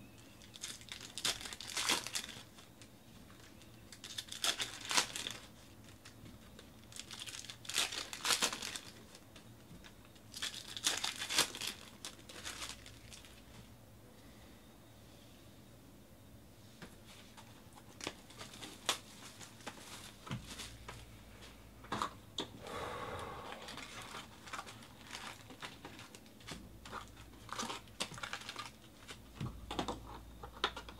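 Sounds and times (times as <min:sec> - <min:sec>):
plastic wrappers crinkling and tearing: 0:00.2 - 0:13.5, 0:17.9 - 0:20.9, 0:23.7 - 0:29.4.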